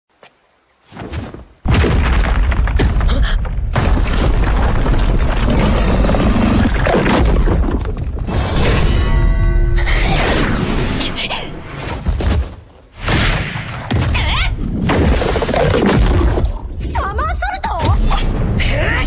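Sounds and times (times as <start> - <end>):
heavy rumbling and crashing: 1.7 - 11.4.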